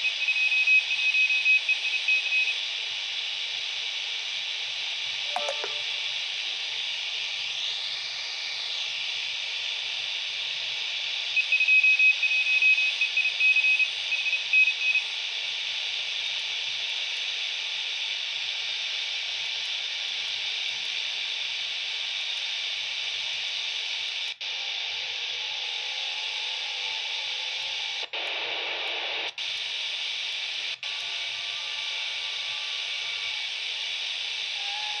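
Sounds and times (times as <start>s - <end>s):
radio receiver hiss: 4.2s - 9.6s, 25.0s - 35.0s
morse code tone: 5.3s - 6.0s.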